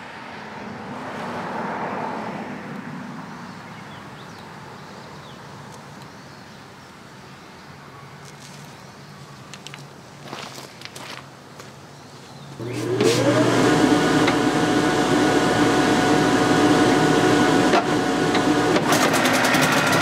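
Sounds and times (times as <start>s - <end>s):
vehicle passing by: 0.0s - 4.0s
steady low engine hum: 12.6s - 20.0s.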